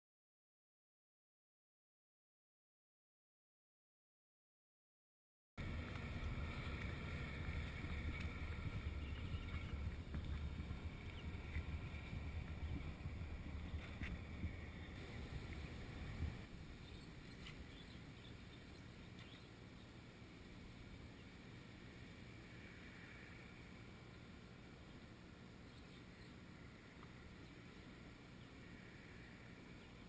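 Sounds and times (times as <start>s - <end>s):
wind buffeting microphone: 5.6s - 18.7s
faint ticks: 5.7s - 16.5s, 25.7s - 27.8s.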